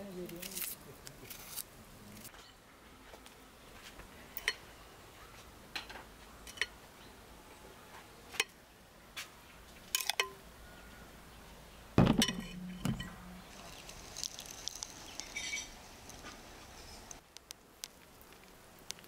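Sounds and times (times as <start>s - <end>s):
dishes and utensils clinking: 12.0s - 13.2s.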